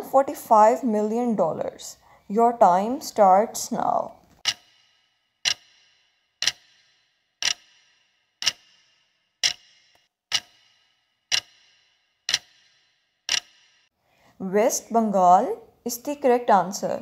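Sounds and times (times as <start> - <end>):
clock ticking: 4.4 - 13.8.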